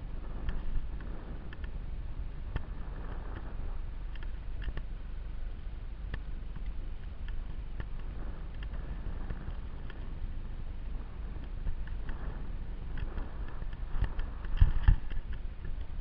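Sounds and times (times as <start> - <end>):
wind rumble on microphone: 0.0 - 16.0
light clicks: 0.4 - 1.8, 4.1 - 4.9.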